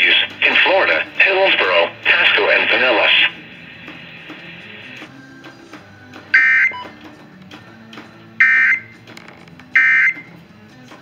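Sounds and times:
short electronic beeps: 6.4s - 6.8s, 8.4s - 8.9s, 9.8s - 10.3s.

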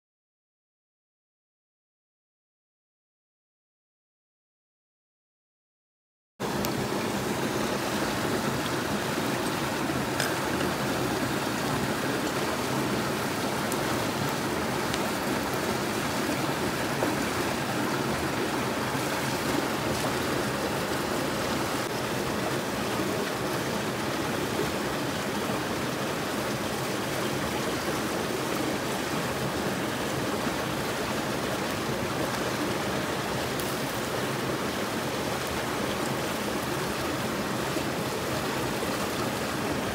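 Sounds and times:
flowing stream rushing: 6.4s - 39.9s.

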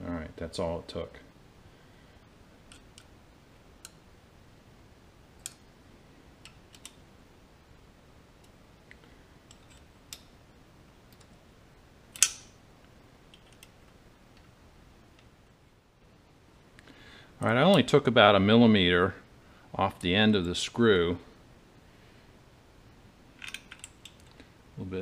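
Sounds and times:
small metal parts clicking: 12.2s - 12.5s, 13.3s - 13.8s, 23.4s - 24.4s.

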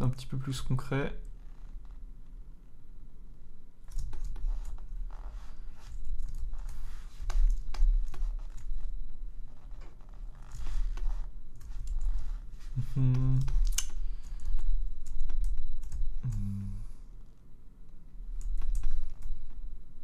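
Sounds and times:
computer keyboard and mouse clicks: 3.9s - 4.8s, 13.4s - 16.4s, 18.4s - 19.4s
person humming: 12.8s - 13.8s, 16.2s - 17.0s.

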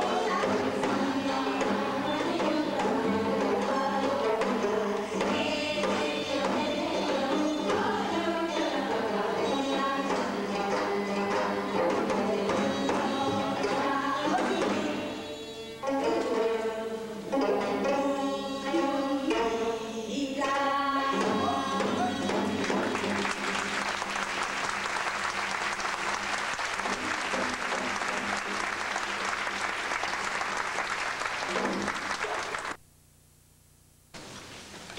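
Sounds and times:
folk singing with zither and drum: 0.0s - 23.9s
audience applause: 22.7s - 32.8s.

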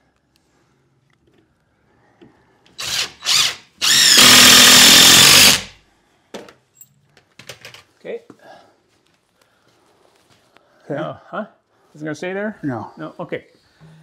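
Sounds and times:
power drill driving screws: 2.8s - 5.8s.

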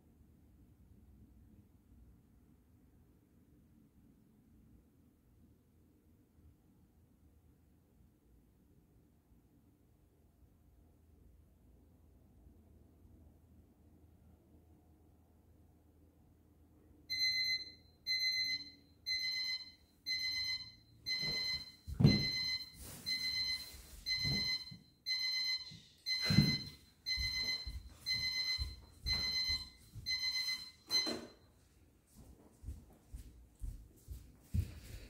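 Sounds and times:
electronic timer alarm beeping: 17.1s - 31.5s
footsteps: 21.1s - 24.8s, 25.6s - 35.0s.

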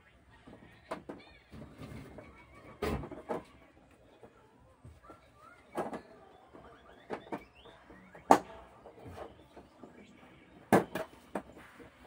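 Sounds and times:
tv knocking on tiled floor: 10.6s - 11.5s.

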